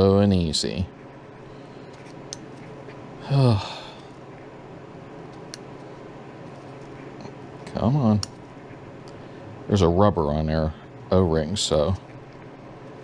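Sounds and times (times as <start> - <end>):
steady low hum: 0.0 - 13.0
man sighing: 3.2 - 4.1.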